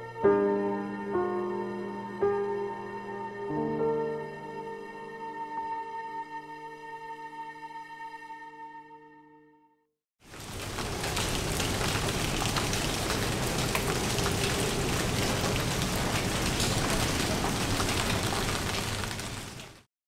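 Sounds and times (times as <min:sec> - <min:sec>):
rain on leaves: 0:10.2 - 0:19.9.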